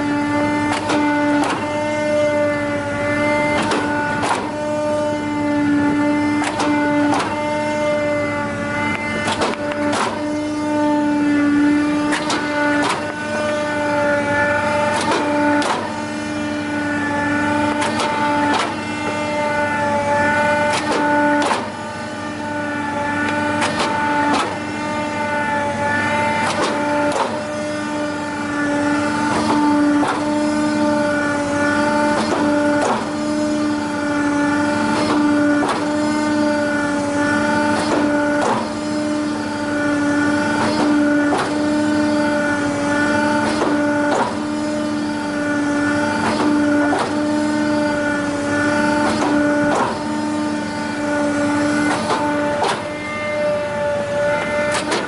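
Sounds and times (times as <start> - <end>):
hydraulic press whine: 0.0 - 55.0
sharp knocks: 3.5 - 4.5.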